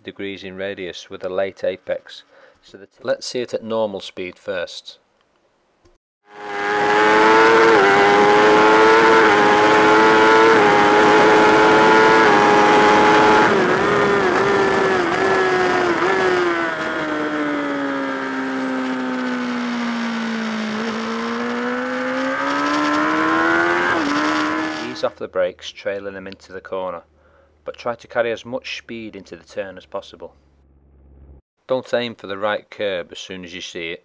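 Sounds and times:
motorcycle engine revving: 6.2 - 25.1.

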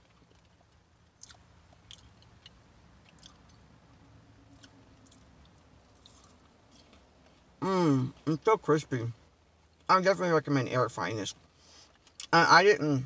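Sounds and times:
quiet crunchy chewing: 0.0 - 3.7, 4.4 - 7.5, 11.5 - 12.4.

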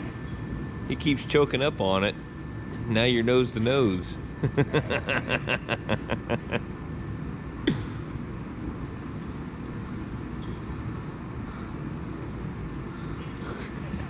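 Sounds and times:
low background hum: 0.0 - 14.0
man laughing: 4.4 - 6.7.

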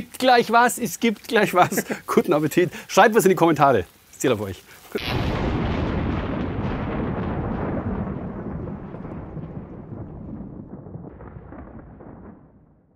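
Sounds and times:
deep boom rumbling: 5.0 - 12.9.

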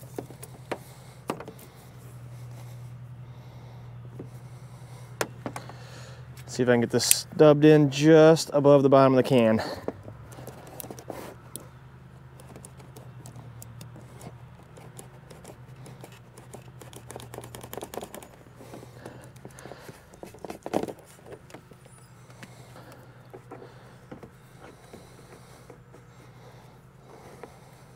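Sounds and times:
fuel hoses clicking and tapping: 0.0 - 2.8, 4.1 - 7.4, 9.2 - 27.9.

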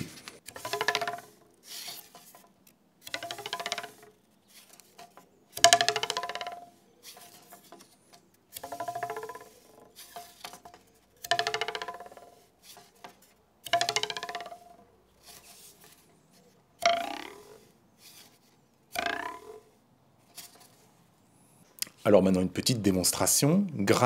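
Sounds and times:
wooden stick twanging on plank: 0.0 - 16.0, 16.8 - 17.7, 18.9 - 19.8.

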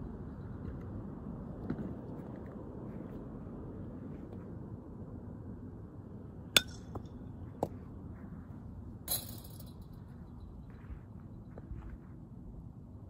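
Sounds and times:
low outdoor background noise: 0.0 - 13.0
bat cracking ball: 6.6 - 7.1
short metallic clink: 9.1 - 10.0.

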